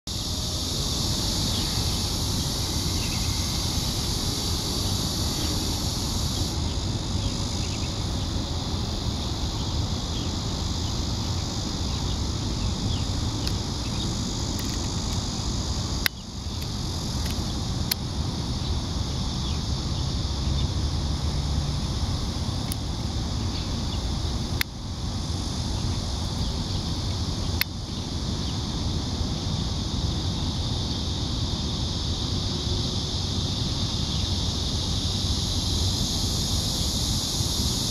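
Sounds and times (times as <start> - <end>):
field insects chorus: 0.1 - 37.9
sharp clicks: 14.5 - 15.2.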